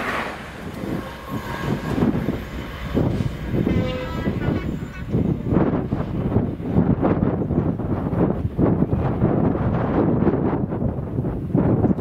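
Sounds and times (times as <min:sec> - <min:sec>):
steady high tone: 0:00.0 - 0:05.4
diesel locomotive passing: 0:00.0 - 0:09.9
wheel rumble: 0:00.0 - 0:12.0.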